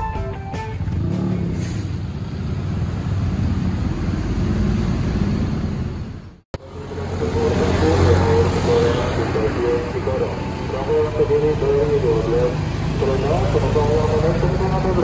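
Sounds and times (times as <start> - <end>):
motorcycle and car traffic: 0.0 - 15.0
scooter engines humming: 0.0 - 15.0.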